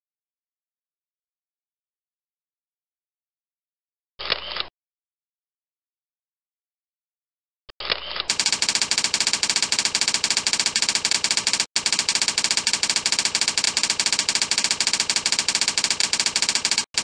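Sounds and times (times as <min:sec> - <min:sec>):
typewriter key clacks: 0:08.3 - 0:17.0.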